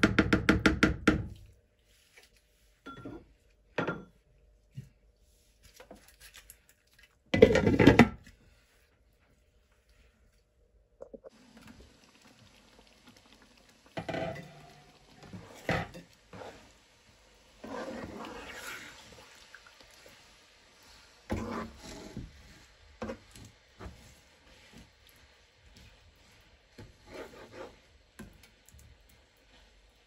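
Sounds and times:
spatula scraping curry in pan: 14.0s - 28.3s.

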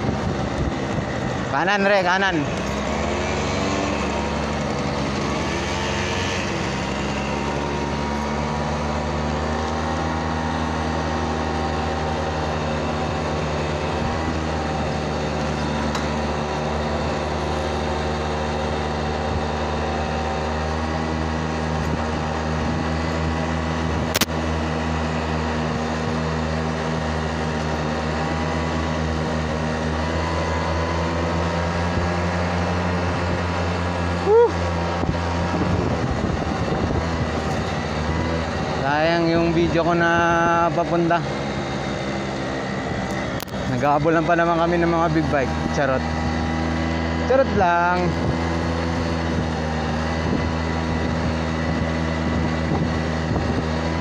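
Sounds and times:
wind rush on microphone: 0.0s - 2.5s, 31.7s - 40.9s, 45.4s - 54.0s
motorbike engine cruising: 0.0s - 54.0s
sharp click: 24.1s - 24.4s.

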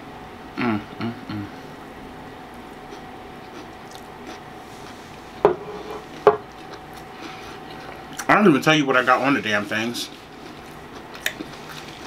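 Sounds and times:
faint chewing: 2.5s - 5.4s, 6.0s - 8.3s, 10.0s - 12.0s.

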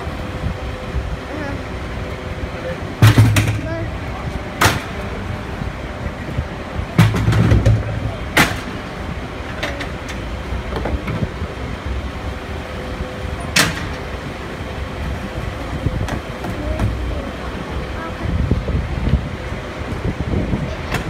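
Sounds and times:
heavy vehicles idling: 0.0s - 21.0s
litter bin clunks: 7.0s - 8.8s.

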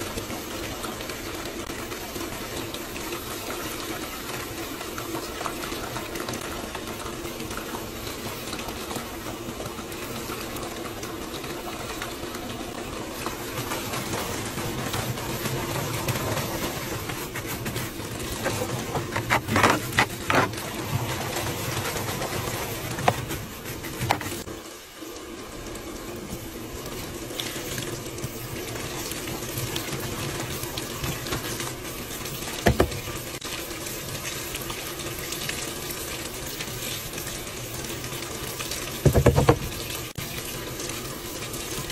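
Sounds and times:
water filling washing machine drum: 0.0s - 41.9s
knocks: 39.0s - 39.7s.

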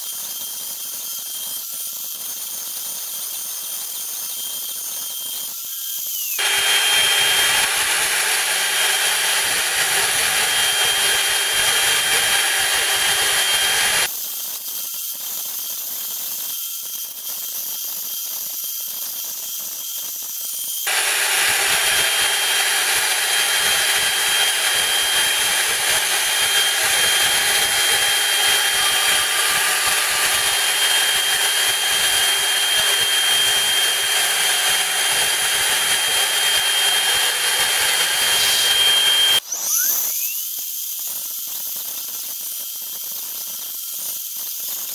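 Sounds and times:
router spindle high whine: 5.8s - 14.1s, 20.8s - 40.5s
plastic cutting noise: 6.4s - 14.1s, 20.9s - 40.3s.

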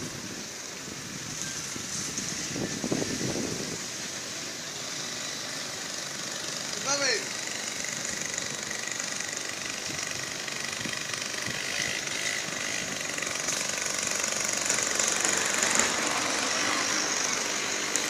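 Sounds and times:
steady street hiss: 0.0s - 18.0s
motor running: 4.8s - 18.0s.

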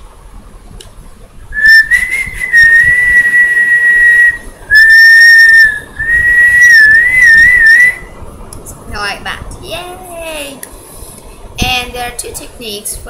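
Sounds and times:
woman whistling high notes: 1.6s - 8.1s.

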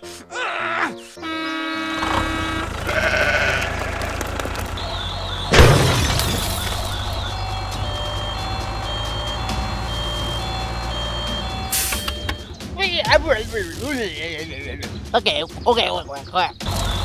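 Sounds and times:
sheep bleating: 1.2s - 4.4s
low tractor engine rumble: 1.9s - 12.6s
short repeated beeps: 8.0s - 12.5s.

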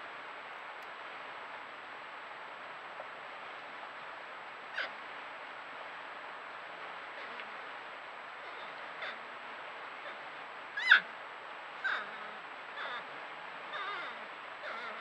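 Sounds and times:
porcupines whining: 8.4s - 9.2s, 10.0s - 11.1s, 11.8s - 13.1s, 13.7s - 15.0s.

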